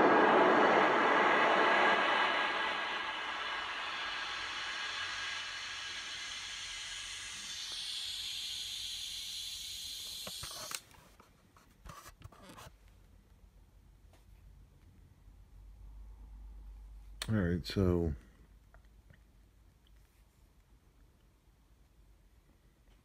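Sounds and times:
hissing rushing noise from speaker: 0.0s - 10.8s.

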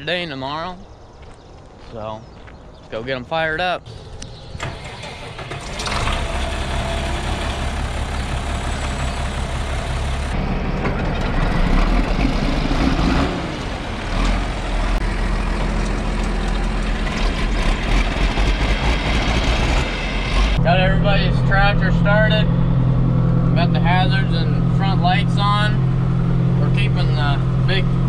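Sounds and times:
diesel tractor engines idling: 3.4s - 28.0s.

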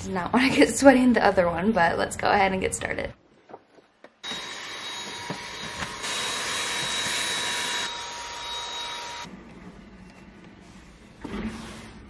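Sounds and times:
handheld vacuum whining: 4.2s - 9.3s.

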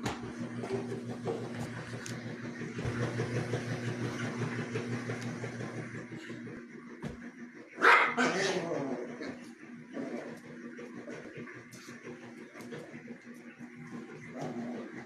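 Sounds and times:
dog growling playfully: 8.1s - 13.1s, 13.7s - 15.0s.

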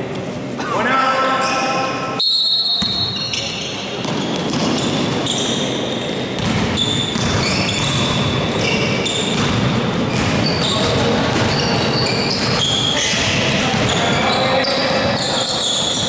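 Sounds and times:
sneaker squeaks on floor: 1.4s - 16.0s
basketball bouncing: 2.8s - 3.2s, 4.0s - 5.3s, 6.3s - 14.2s.

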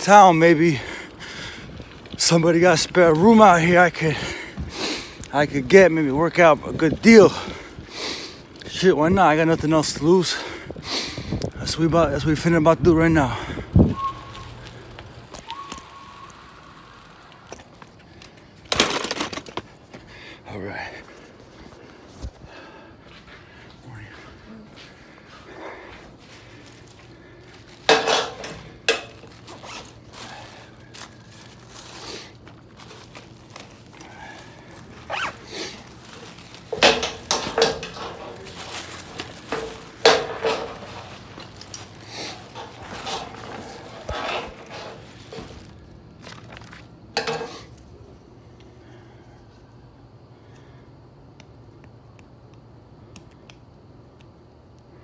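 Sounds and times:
bicycle riding: 0.0s - 49.3s
thin whine: 12.6s - 18.4s.

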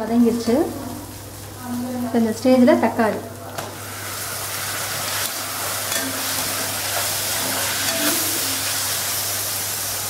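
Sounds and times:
vegetables sizzling in oil: 0.0s - 10.0s
metal spatula scraping pan: 5.1s - 9.1s.

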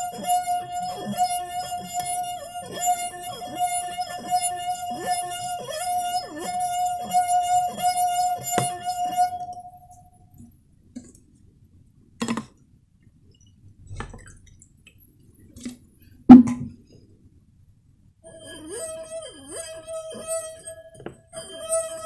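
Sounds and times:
wet finger singing glass rim: 0.0s - 10.2s, 18.3s - 22.0s.

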